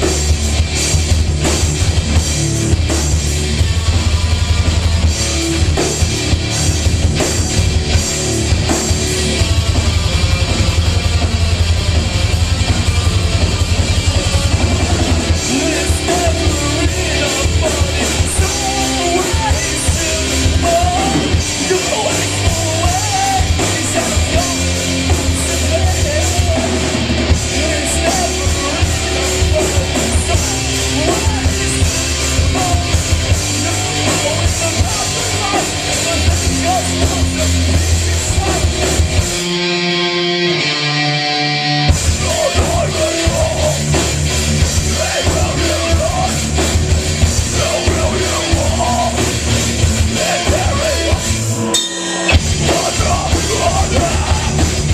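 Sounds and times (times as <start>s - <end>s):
rock band playing loud: 0.0s - 54.9s
person singing: 14.2s - 26.8s, 27.4s - 38.9s, 42.1s - 44.1s, 44.7s - 46.7s, 47.4s - 54.9s.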